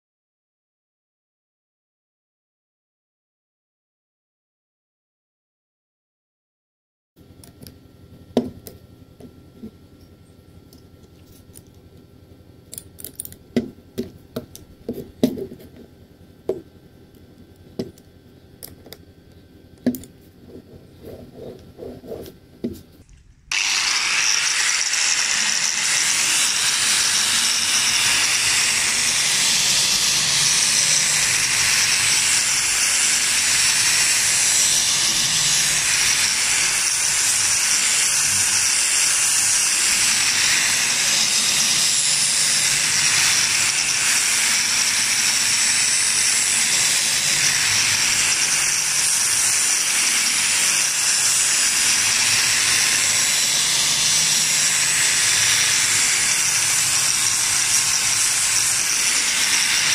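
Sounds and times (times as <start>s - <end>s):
angle grinder grinding steel: 23.5s - 59.9s.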